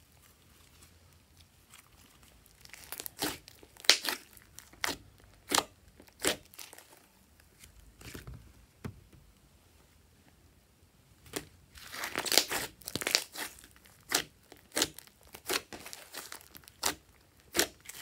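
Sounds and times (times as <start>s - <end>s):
slime popping and crackling: 1.8s - 6.9s, 11.3s - 18.0s.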